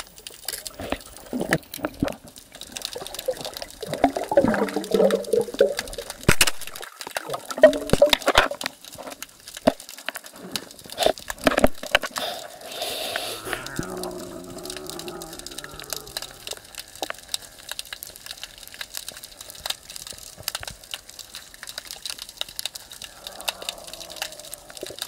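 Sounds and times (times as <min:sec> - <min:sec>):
underwater sloshing and gurgling: 0:00.2 - 0:13.6.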